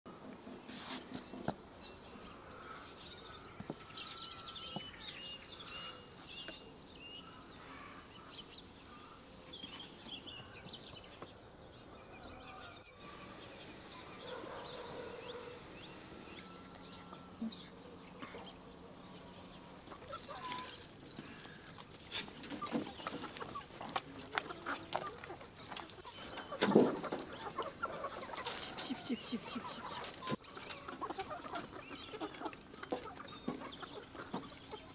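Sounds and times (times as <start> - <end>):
small birds chirping: 0.1 - 34.9
chickens clucking: 7.4 - 34.9.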